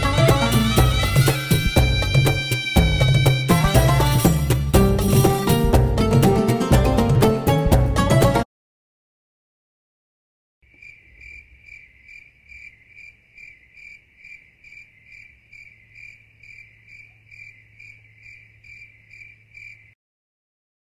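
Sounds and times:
insect chirping trill: 10.6 - 20.0.

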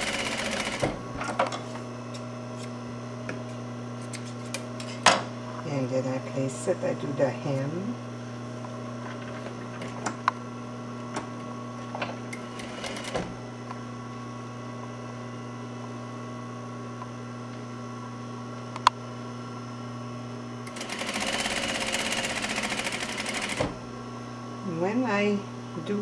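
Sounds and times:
sewing machine hum: 0.0 - 1.0, 12.3 - 13.3, 20.6 - 23.8.

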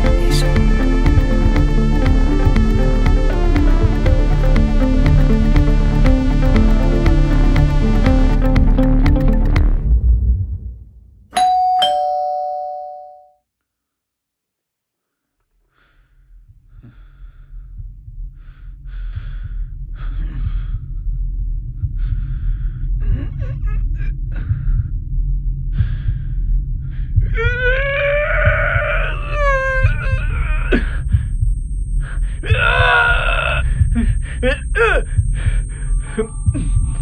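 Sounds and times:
low rumble: 0.0 - 11.3, 16.5 - 27.4, 29.8 - 32.9, 33.6 - 37.0
two-note chime: 11.4 - 13.3.

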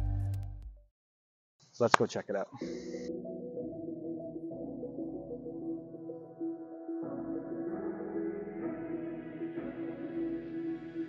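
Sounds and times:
soft ambient music: 2.6 - 11.0.

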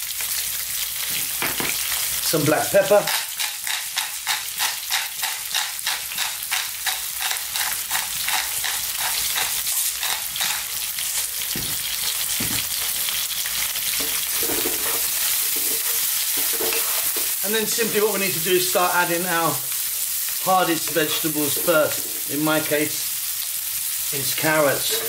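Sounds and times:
onions sizzling in oil: 0.0 - 25.0
pepper mill grinding: 2.8 - 12.8
wooden spoon stirring in pan: 13.8 - 18.1, 24.4 - 25.0.

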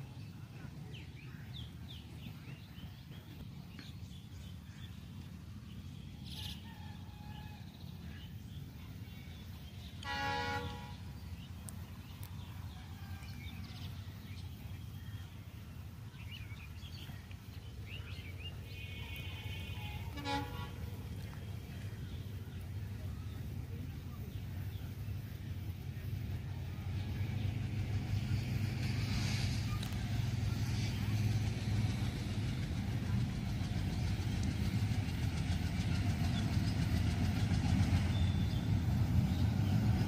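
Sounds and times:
low steady rumble: 0.0 - 40.0
birds chirping: 0.6 - 26.1, 35.8 - 40.0
locomotive horn blast: 10.0 - 11.2, 18.6 - 21.2.

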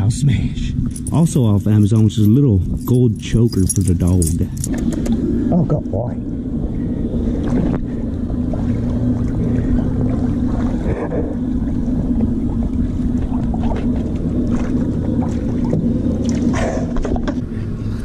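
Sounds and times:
steady low hum: 0.0 - 18.0
water sloshing and splashing: 6.8 - 18.0.

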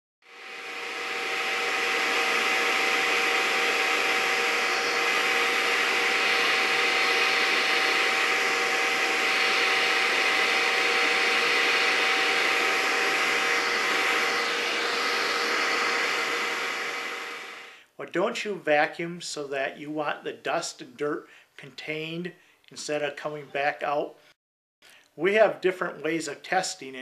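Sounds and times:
vacuum cleaner running: 0.2 - 17.8.

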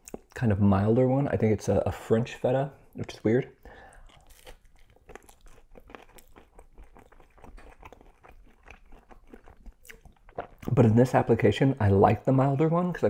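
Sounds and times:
crackles and wet mouth clicks: 0.0 - 0.4, 3.8 - 10.9
person chewing food: 0.0 - 0.4, 3.7 - 10.9.

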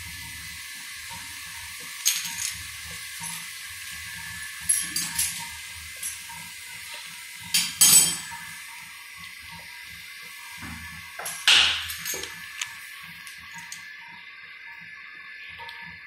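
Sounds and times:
metal pots and utensils clinking: 1.9 - 3.6, 4.6 - 8.6, 10.6 - 12.5.

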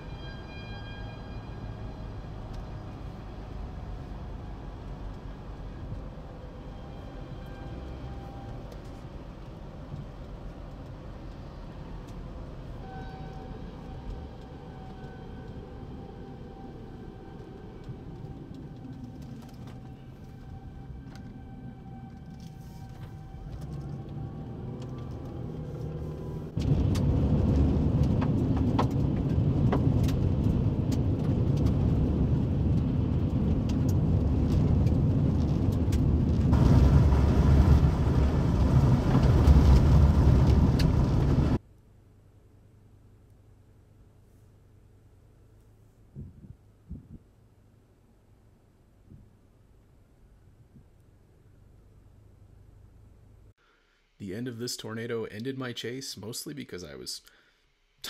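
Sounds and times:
vehicle road noise: 0.0 - 57.0
low rumbling wind: 13.5 - 41.6, 46.1 - 53.5.

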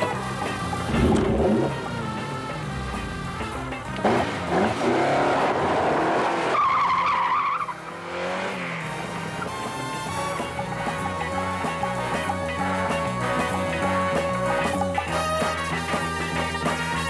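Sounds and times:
chase music: 0.0 - 6.3, 7.7 - 17.0
car engine revving hard: 0.0 - 11.6.

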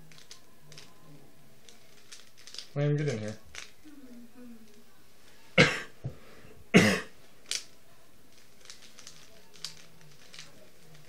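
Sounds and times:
puzzle cube clicking: 0.1 - 0.9, 8.4 - 11.0
person coughing: 5.6 - 6.0, 6.7 - 7.2.

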